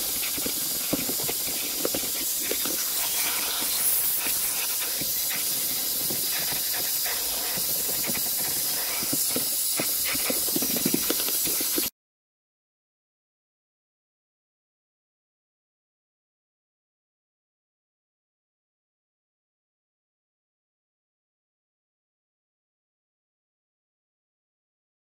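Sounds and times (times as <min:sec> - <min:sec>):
nozzle clicks and rustles on carpet: 0:00.0 - 0:11.9
vacuum hose hissing: 0:00.0 - 0:11.9.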